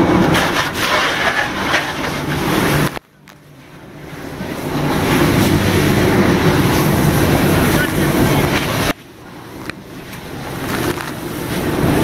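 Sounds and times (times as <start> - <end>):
fire hose water spray: 4.5 - 9.0.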